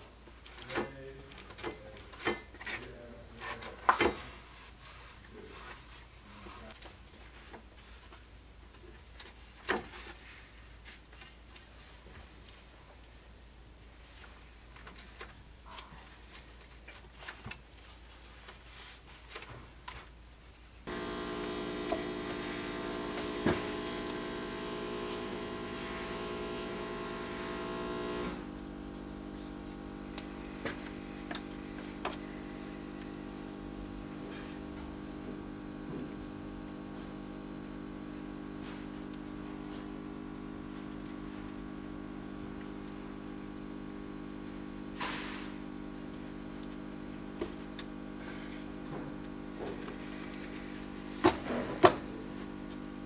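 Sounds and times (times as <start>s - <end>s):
electrical hum: 20.8s - 53.0s
short scrape: 45.0s - 45.6s.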